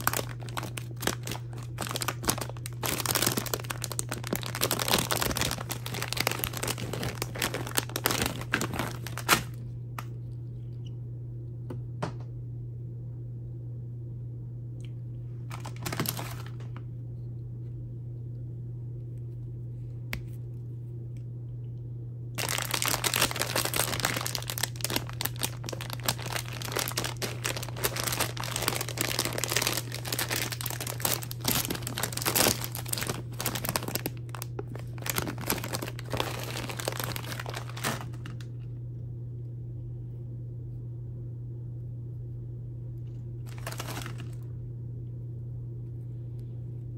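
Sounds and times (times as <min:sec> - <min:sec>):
candy bags crinkling: 0:00.0 - 0:10.2, 0:15.3 - 0:16.8, 0:22.4 - 0:38.7, 0:43.4 - 0:44.5
steady low hum: 0:00.0 - 0:46.9.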